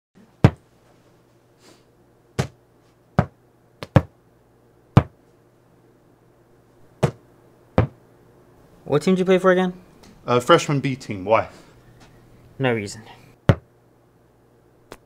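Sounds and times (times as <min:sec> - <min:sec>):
basketball bouncing on hard floor: 0:03.2 - 0:04.1, 0:05.0 - 0:05.2.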